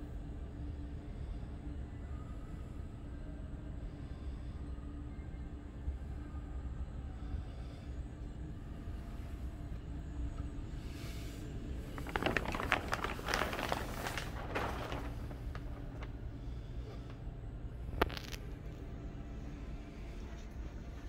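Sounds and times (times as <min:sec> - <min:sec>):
steady low hum: 0:00.0 - 0:21.0
plastic sheeting crinkling: 0:11.8 - 0:17.0, 0:18.0 - 0:18.6.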